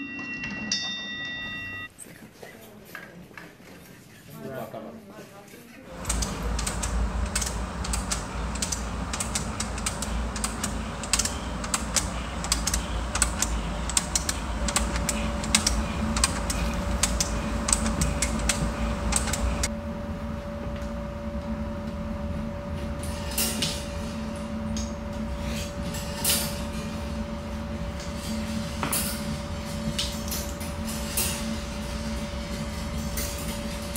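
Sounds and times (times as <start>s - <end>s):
hand-cranked machines clicking and rattling: 5.9s - 19.7s
steady tone: 5.9s - 20.4s.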